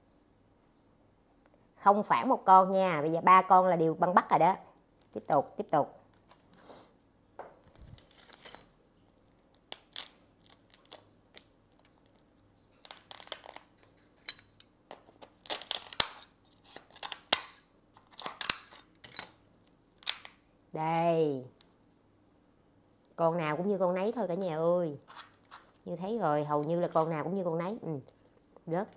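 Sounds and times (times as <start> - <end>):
shell cracking: 9.3 - 20.5.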